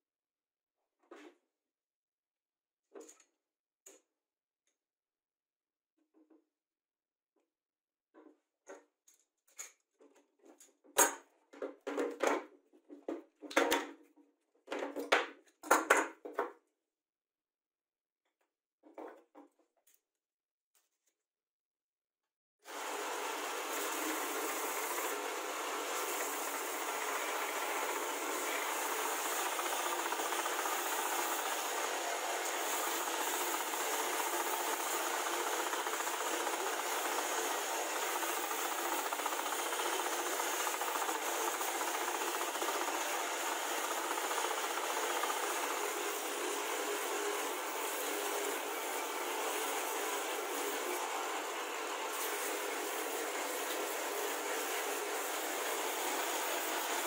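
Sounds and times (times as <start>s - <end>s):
motor hum: 22.7s - 45.7s
belt sander hiss on wood: 22.7s - 57.0s.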